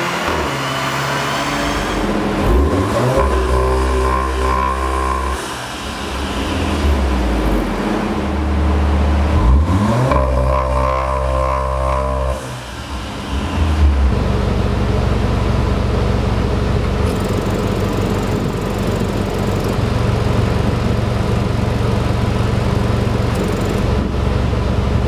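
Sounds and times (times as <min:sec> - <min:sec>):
car engine idling: 0:12.5 - 0:25.0.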